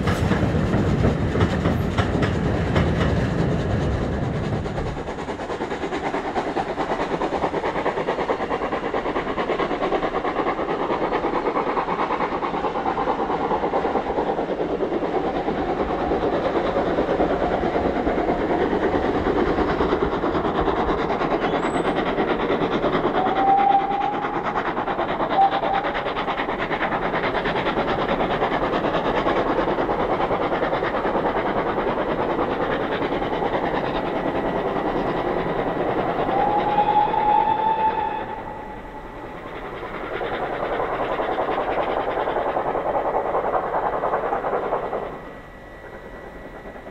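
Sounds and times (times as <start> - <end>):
steam locomotive exhaust beating: 0.0 - 46.9.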